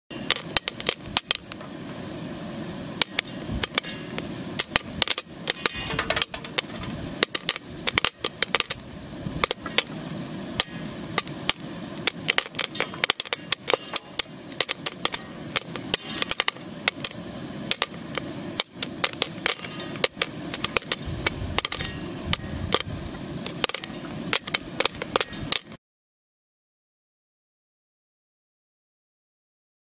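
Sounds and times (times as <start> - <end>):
popcorn popping in a pan: 0.1 - 25.8
steady background noise: 0.1 - 25.8.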